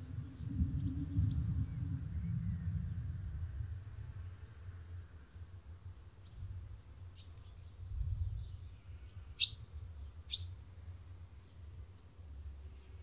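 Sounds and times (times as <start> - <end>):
low rumble: 0.0 - 5.2
birds chirping: 6.2 - 10.6.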